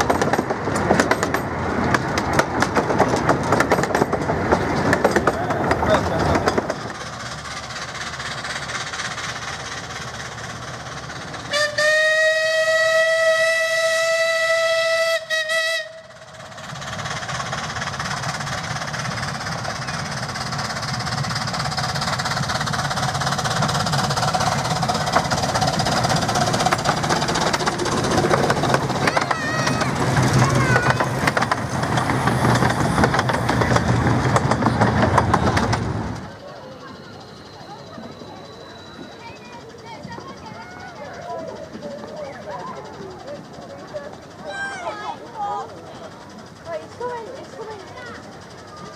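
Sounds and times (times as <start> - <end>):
steam train running: 0.0 - 48.9
steam locomotive whistle: 11.5 - 16.3.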